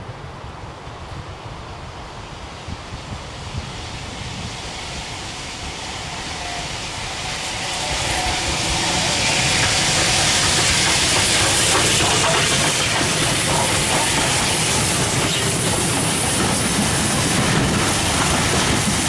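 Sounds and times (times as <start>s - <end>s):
steam locomotive passing: 0.0s - 19.0s
wheels running on rails: 6.5s - 19.0s.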